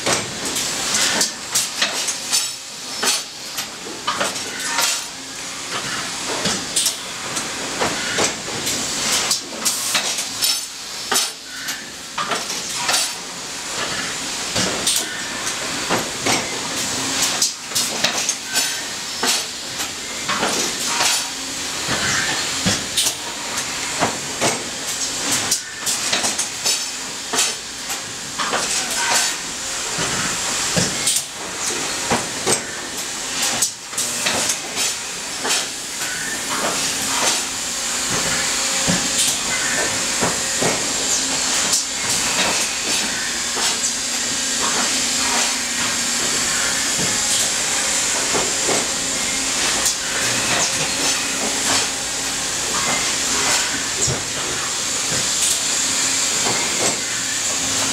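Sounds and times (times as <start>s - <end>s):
factory machinery hissing: 0.0s - 57.9s
machinery clanks and clicks: 0.0s - 57.9s.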